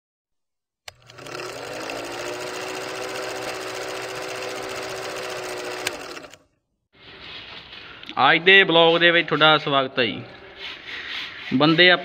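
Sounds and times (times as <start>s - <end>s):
film projector running: 0.9s - 6.4s.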